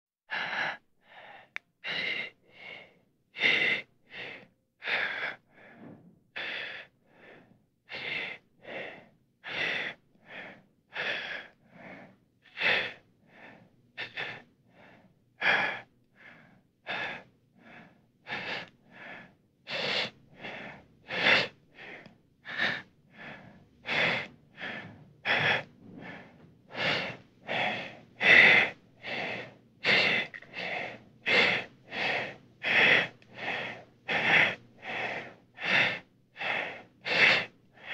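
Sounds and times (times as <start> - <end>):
person breathing laboriously: 0.3 - 37.9.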